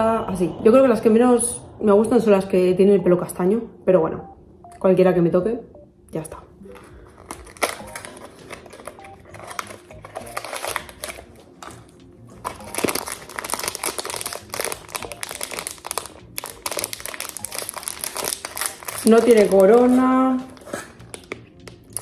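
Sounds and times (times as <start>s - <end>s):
foil packet crinkling: 6.6s - 22.0s
cardboard box opening: 7.4s - 11.2s.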